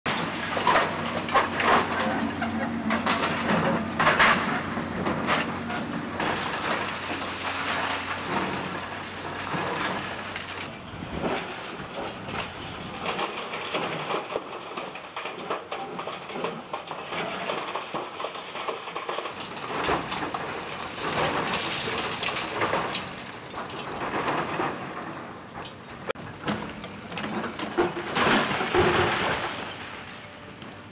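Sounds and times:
excavator tearing apart wall: 0:00.1 - 0:30.9
masonry cracking and crumbling: 0:00.1 - 0:30.9
rubble clattering down: 0:11.2 - 0:25.4.

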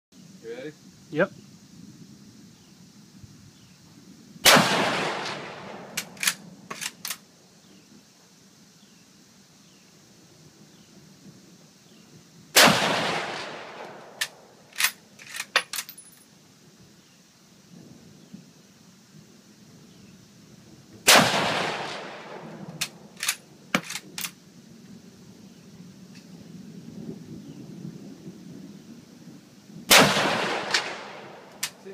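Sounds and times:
rifle shot echoing: 0:04.4 - 0:07.0, 0:12.6 - 0:15.0, 0:21.0 - 0:24.1, 0:29.9 - 0:31.8
rifle bolt clacking: 0:06.0 - 0:07.2, 0:23.2 - 0:24.4.

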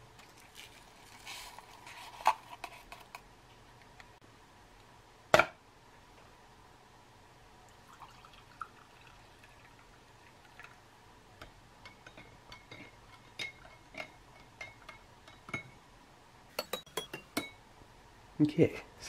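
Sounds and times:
spoon clinking in glass: 0:16.6 - 0:17.6.

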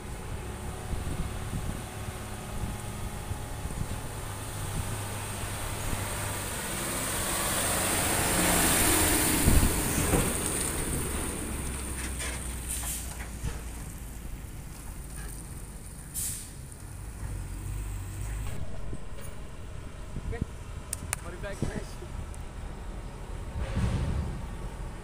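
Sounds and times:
diesel truck driving past: 0:00.0 - 0:25.0
clunks from truck rig: 0:09.4 - 0:14.0, 0:23.5 - 0:25.0
short hiss: 0:16.1 - 0:16.6.

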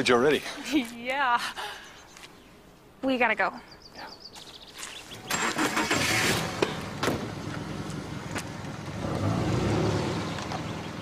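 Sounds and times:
car engine rumbling: 0:05.1 - 0:11.0.

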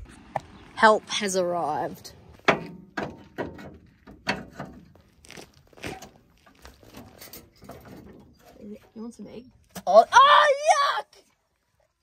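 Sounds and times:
irregular knocks and crunches: 0:02.3 - 0:08.7.

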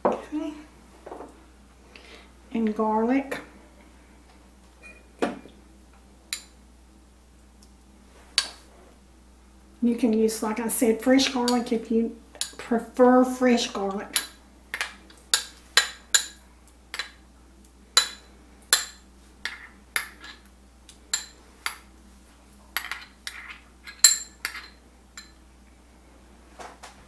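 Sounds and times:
metal spoon clinking on glass jar: 0:22.8 - 0:25.4.

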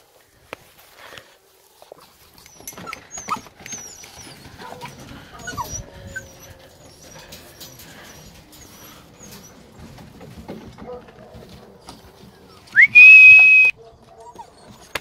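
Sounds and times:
puppies whimpering: 0:01.9 - 0:10.3, 0:11.8 - 0:15.0.

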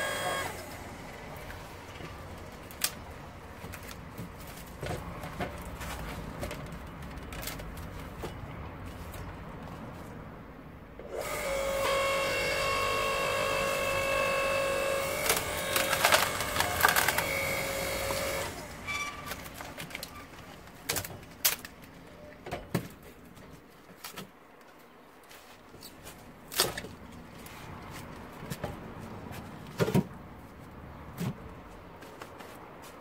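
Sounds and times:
log splitter motor whining: 0:00.0 - 0:01.5, 0:11.0 - 0:19.6
wood splitting cracks: 0:15.0 - 0:18.6, 0:26.5 - 0:27.0.

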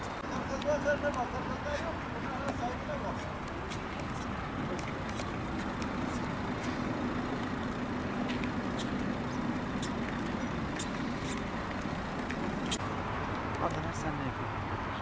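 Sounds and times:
vehicle engine hum: 0:00.0 - 0:15.0.

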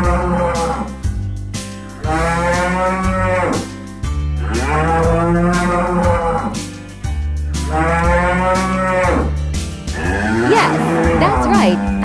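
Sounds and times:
background music: 0:00.0 - 0:12.0
cattle mooing: 0:02.0 - 0:03.7, 0:04.4 - 0:06.6, 0:07.7 - 0:12.0.

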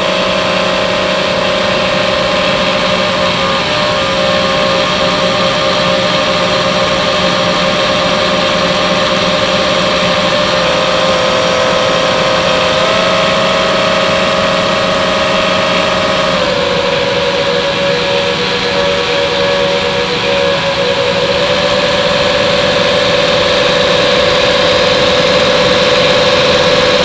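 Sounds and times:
drone propellers whining: 0:00.0 - 0:27.0.

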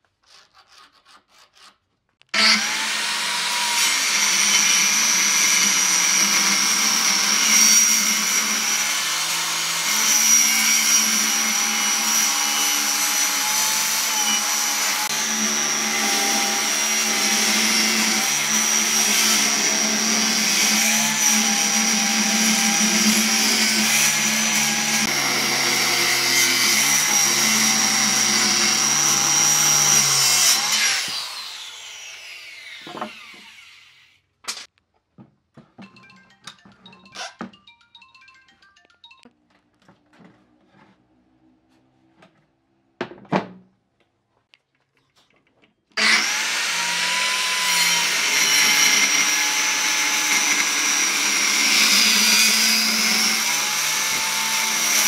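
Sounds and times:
circular saw cutting wood: 0:00.3 - 0:34.2, 0:46.0 - 0:55.0.

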